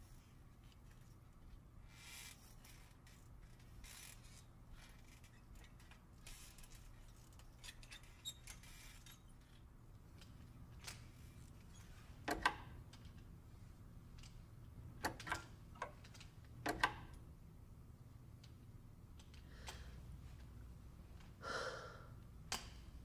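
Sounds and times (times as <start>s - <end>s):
low steady elevator hum: 0.0s - 23.0s
faint creaks and clicks: 0.5s - 13.4s, 18.3s - 21.4s.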